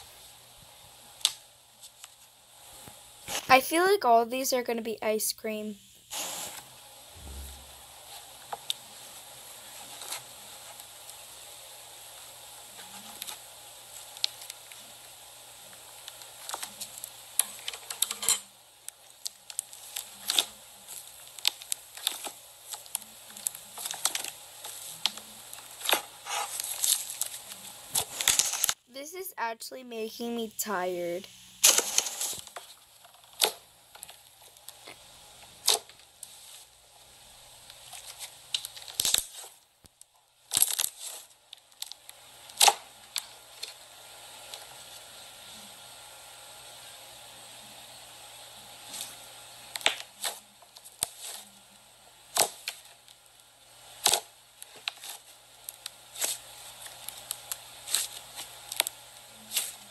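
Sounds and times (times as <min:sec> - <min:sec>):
crackling pops and clicks: 0:01.2 - 0:03.6, 0:12.8 - 0:28.8, 0:30.6 - 0:36.6, 0:37.6 - 0:43.8, 0:48.9 - 0:51.4, 0:52.3 - 0:59.8.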